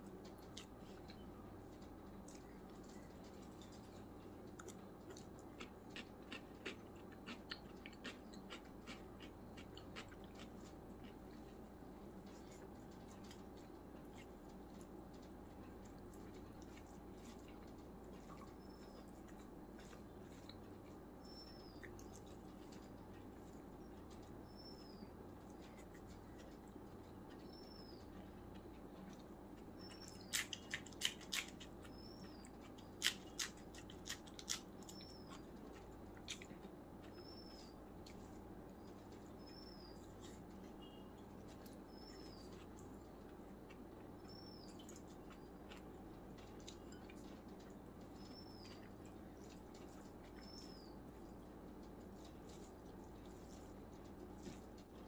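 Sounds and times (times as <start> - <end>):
steady low hum: 0.0 - 55.0
wet mouth clicks chewing: 4.5 - 11.6.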